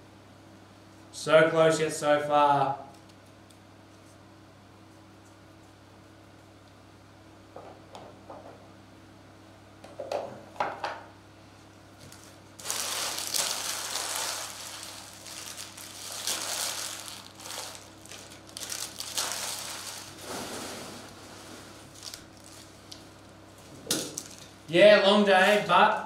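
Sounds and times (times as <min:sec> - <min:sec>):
foil wrappers crumpling: 0:12.0 - 0:21.2, 0:21.8 - 0:23.2, 0:24.1 - 0:24.5.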